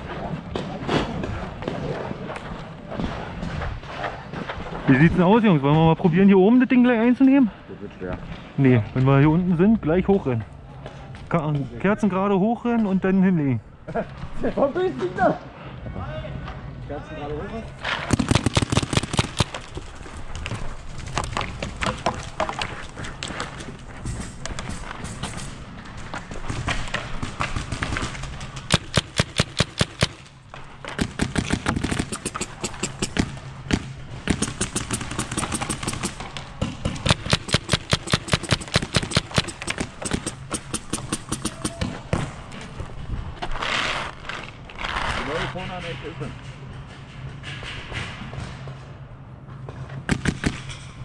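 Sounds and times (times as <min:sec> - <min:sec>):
paintball markers firing: 0:17.9 - 0:20.0, 0:26.2 - 0:30.3, 0:30.9 - 0:42.3, 0:50.1 - 0:50.8.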